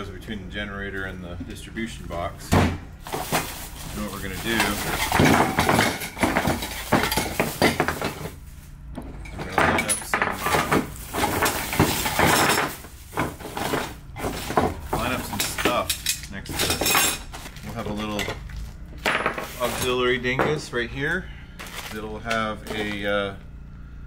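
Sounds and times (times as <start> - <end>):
plastic bags rustling: 0.8 - 23.2.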